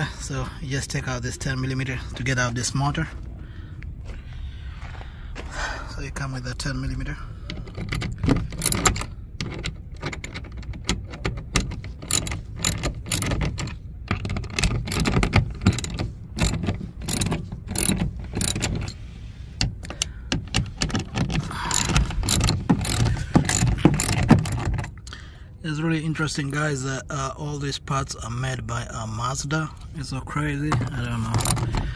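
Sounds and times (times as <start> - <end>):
ratchet wrench clicking: 8.2 - 9.7, 10.7 - 19.0, 19.8 - 24.9, 31.3 - 31.8.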